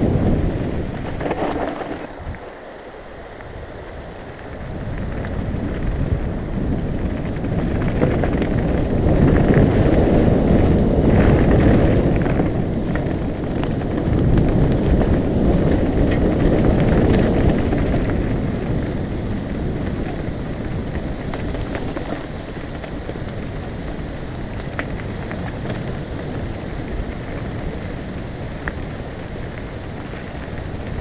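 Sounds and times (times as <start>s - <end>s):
bike rattling and knocking: 0.0s - 2.4s, 4.4s - 31.0s
tyres crunching over stones: 0.0s - 2.6s
wind rushing over microphone: 0.0s - 31.0s.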